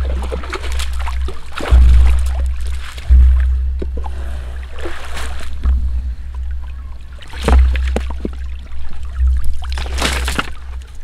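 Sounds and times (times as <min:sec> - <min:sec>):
water splashing and dripping off net: 0:00.0 - 0:03.6, 0:06.6 - 0:11.0
steady low rumble: 0:00.0 - 0:11.0.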